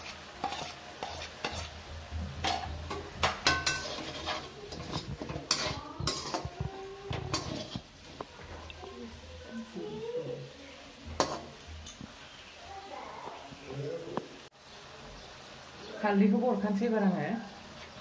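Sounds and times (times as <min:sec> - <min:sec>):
metal spatula scraping a pan: 0:00.0 - 0:08.7, 0:11.0 - 0:12.0
chicken frying: 0:00.0 - 0:18.0.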